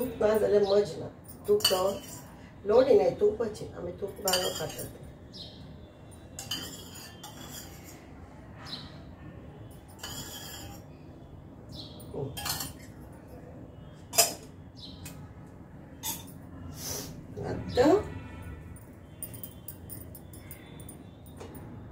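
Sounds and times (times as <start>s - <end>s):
spoon scraping steel bowl: 1.5s - 2.4s, 4.2s - 5.0s, 6.3s - 8.1s, 9.7s - 11.0s, 16.0s - 16.4s.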